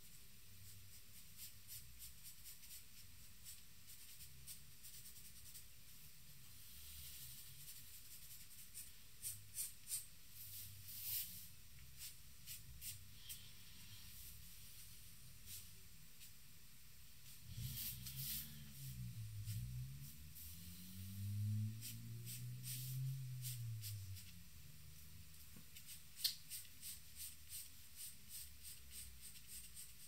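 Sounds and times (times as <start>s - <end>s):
pencil scratching on paper: 0.6s - 5.7s, 7.1s - 10.1s, 25.8s - 30.0s.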